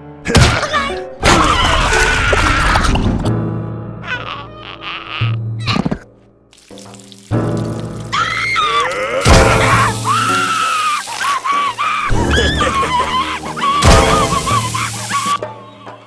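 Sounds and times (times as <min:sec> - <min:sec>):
background music: 0:00.0 - 0:16.0
sizzling hiss: 0:06.5 - 0:08.5, 0:09.2 - 0:12.2, 0:13.7 - 0:15.4
cartoon character screaming: 0:08.1 - 0:15.4.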